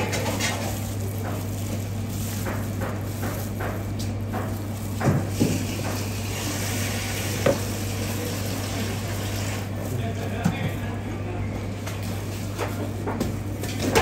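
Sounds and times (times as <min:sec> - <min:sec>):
low kitchen hum and hiss: 0:00.0 - 0:14.0.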